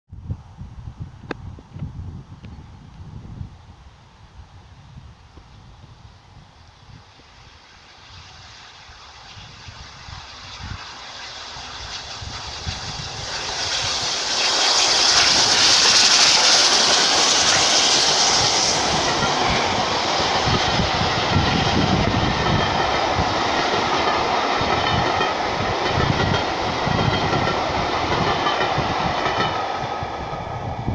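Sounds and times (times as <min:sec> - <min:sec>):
steam locomotive passing: 0:02.5 - 0:30.9
steam hiss: 0:03.8 - 0:30.9
wheels clacking on rails: 0:10.5 - 0:30.9.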